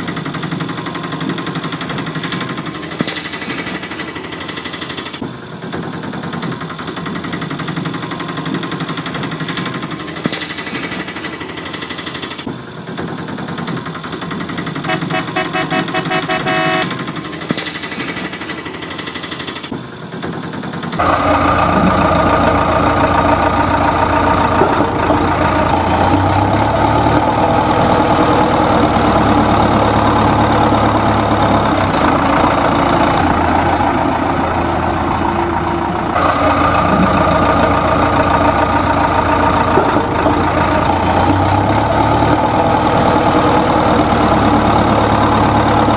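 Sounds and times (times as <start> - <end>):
vehicle engine running: 12.7 - 17.6, 20.0 - 45.9
horn-like beeps: 14.9 - 17.2.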